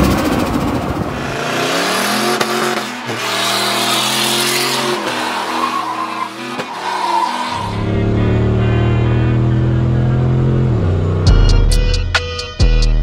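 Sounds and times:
truck engine at high revs: 0:00.0 - 0:11.4
tyres spinning and squealing: 0:02.8 - 0:07.8.

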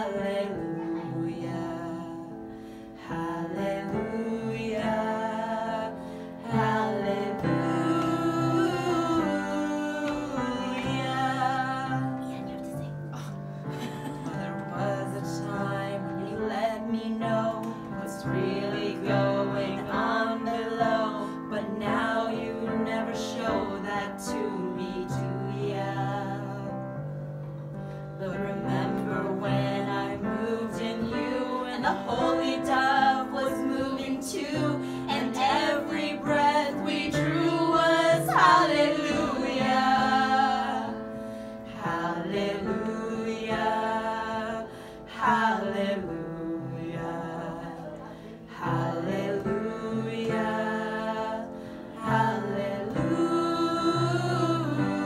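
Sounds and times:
women singing together: 0:00.0 - 0:27.1, 0:28.2 - 0:55.0
piano accompaniment: 0:00.0 - 0:55.0.

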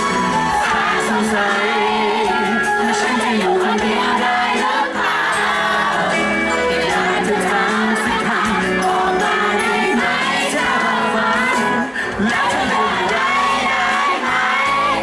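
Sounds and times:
crowd voices: 0:00.0 - 0:15.0
pop music accompaniment: 0:00.0 - 0:15.0
man singing into microphone: 0:00.6 - 0:05.0, 0:07.1 - 0:13.9.

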